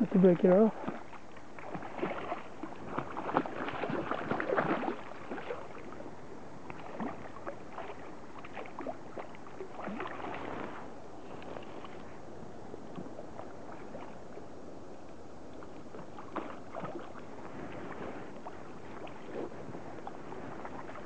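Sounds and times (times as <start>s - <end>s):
fish splashing in water: 0.8s - 12.1s, 15.6s - 19.3s.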